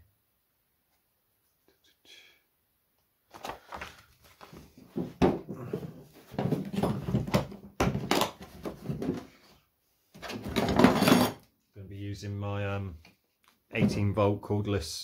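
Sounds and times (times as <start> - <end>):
paper rustling: 3.3 - 5.0.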